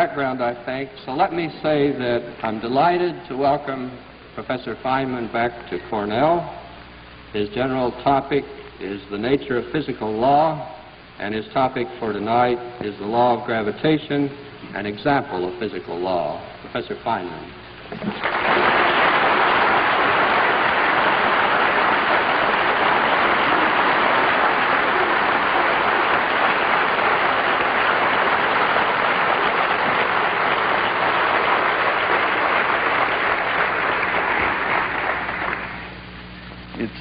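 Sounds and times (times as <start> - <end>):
audience applauding: 18.0 - 36.0.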